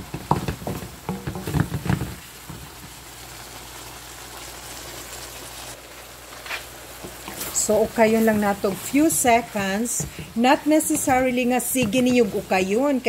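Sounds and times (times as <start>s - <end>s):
spatula knocking wok: 0.0s - 3.0s, 8.6s - 12.5s
vegetables sizzling: 0.0s - 13.0s.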